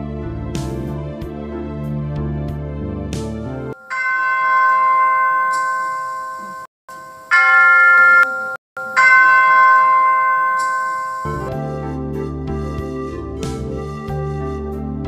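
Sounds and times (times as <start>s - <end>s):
background music: 0.0s - 3.9s, 11.3s - 15.0s
bell ringing: 3.8s - 11.5s.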